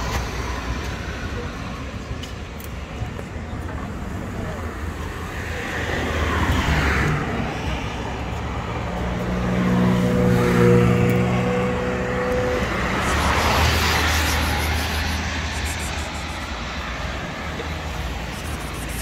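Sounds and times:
vehicle engine humming: 0:07.1 - 0:19.0.

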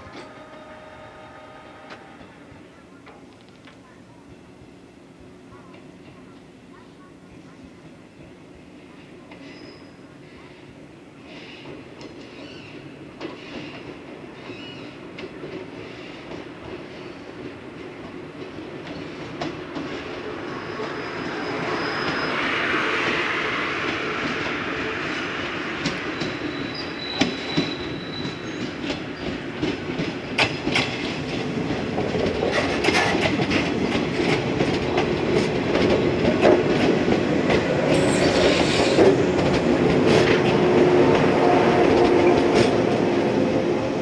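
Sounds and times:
train running gear hum: 0:00.0 - 0:44.0
train wheels clicking over joints: 0:11.3 - 0:21.0, 0:25.8 - 0:43.1.

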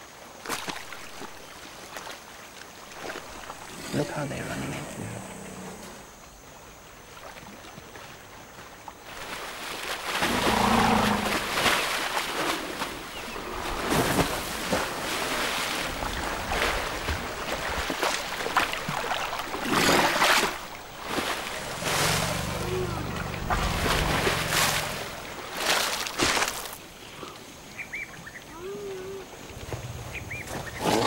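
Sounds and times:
elephants splashing in water: 0:07.1 - 0:26.9.

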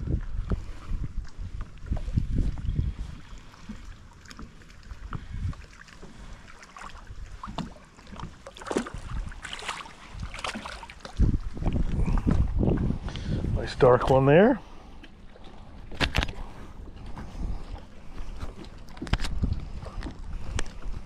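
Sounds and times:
wind buffeting microphone: 0:00.0 - 0:21.0
fish splashing in water: 0:03.5 - 0:11.5.

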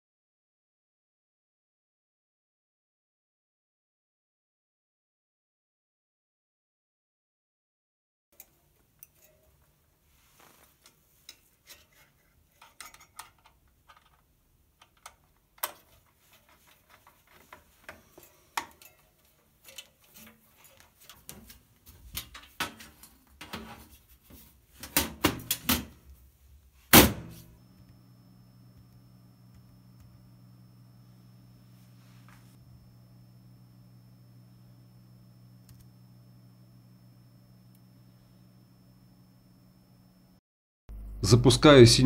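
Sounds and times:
hands handling computer parts: 0:10.3 - 0:26.0.

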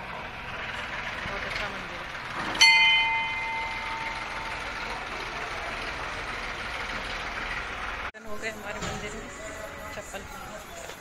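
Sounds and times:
temple bell ringing: 0:02.6 - 0:06.8.

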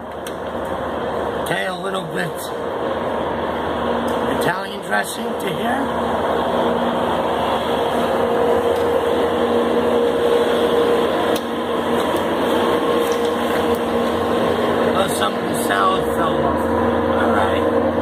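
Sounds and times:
low constant hum: 0:00.0 - 0:18.0.

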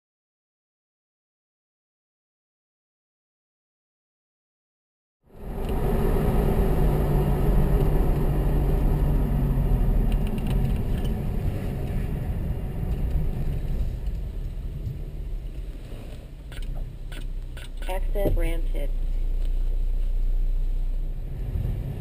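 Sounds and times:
road and wind rumble: 0:05.2 - 0:22.0
car engine humming: 0:05.3 - 0:22.0.

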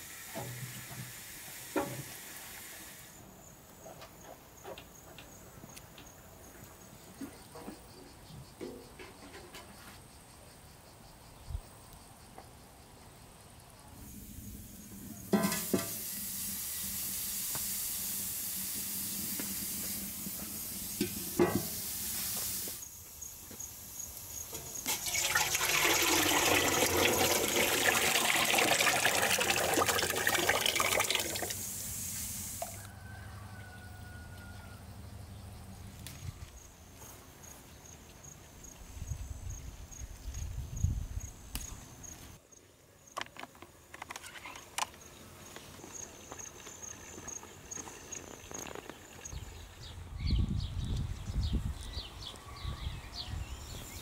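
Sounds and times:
water running: 0:24.7 - 0:31.8.

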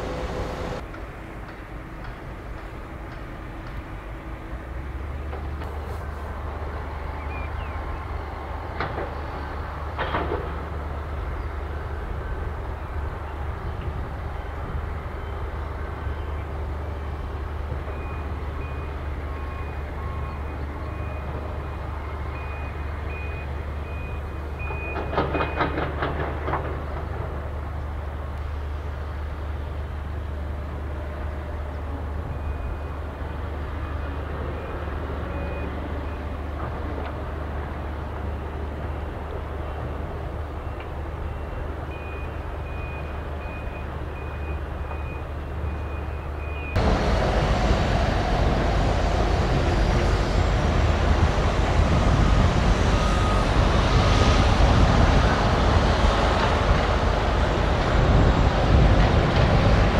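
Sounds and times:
heavy machinery rumbling: 0:00.0 - 0:42.1, 0:45.9 - 0:59.9
reversing alarm beeping: 0:17.8 - 0:25.8, 0:40.6 - 0:46.8, 0:52.1 - 0:54.0.

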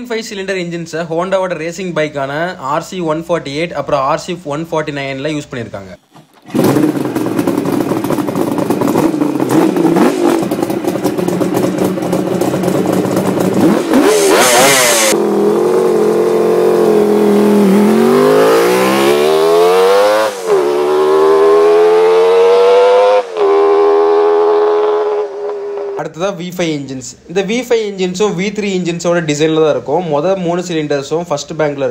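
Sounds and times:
two-stroke motorcycle engine revving: 0:06.1 - 0:26.0.

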